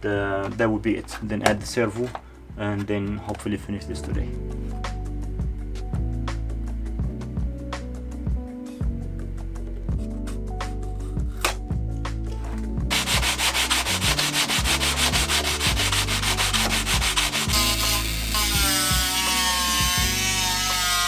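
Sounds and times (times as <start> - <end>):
background music: 0.0 - 21.0
hand sanding wood: 12.9 - 18.5.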